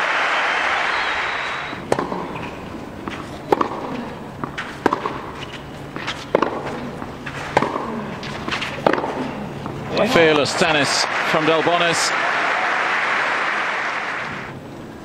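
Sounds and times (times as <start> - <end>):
crowd applause: 0.0 - 2.1, 9.8 - 14.6
tennis ball bouncing: 1.4 - 10.5
racket striking tennis ball: 1.7 - 10.5.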